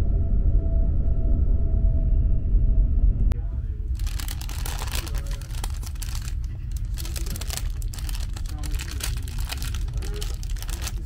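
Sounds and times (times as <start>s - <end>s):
train rumble: 0.4s - 11.0s
paper bag crinkling: 3.9s - 11.0s.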